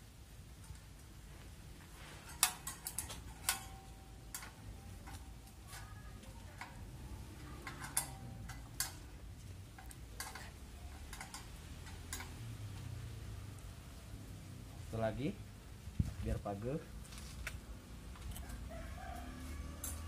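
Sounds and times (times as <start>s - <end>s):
metal tools clicking and clinking: 2.2s - 12.6s, 19.6s - 20.0s.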